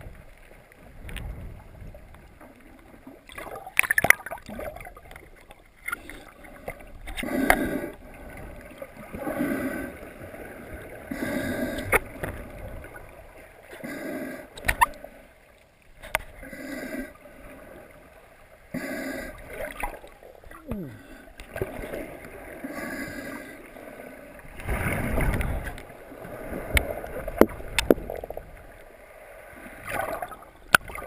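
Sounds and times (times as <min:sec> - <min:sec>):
water gurgling: 0:00.0 - 0:31.0
breathing through a snorkel: 0:05.9 - 0:08.1, 0:09.2 - 0:10.2, 0:11.0 - 0:12.1, 0:13.7 - 0:15.2, 0:16.4 - 0:17.3, 0:18.7 - 0:19.6, 0:22.6 - 0:24.3.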